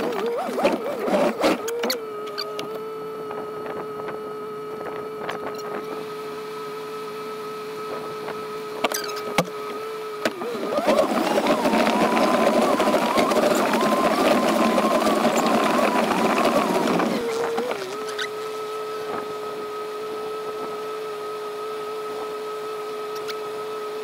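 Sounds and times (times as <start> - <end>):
vehicle engine revving: 9.8 - 19.1.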